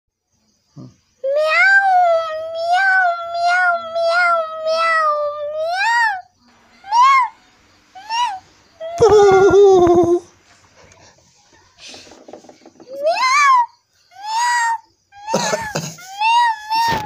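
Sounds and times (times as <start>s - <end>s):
kittens meowing: 1.2s - 10.3s.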